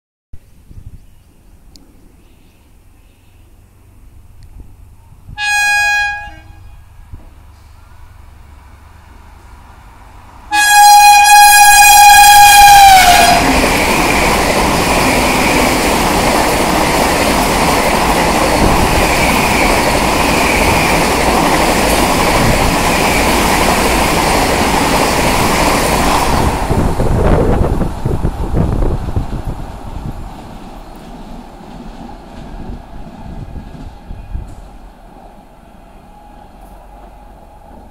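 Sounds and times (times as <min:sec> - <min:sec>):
train rushing past: 0:03.6 - 0:37.9
train horn blasting: 0:05.3 - 0:07.0, 0:10.5 - 0:13.7.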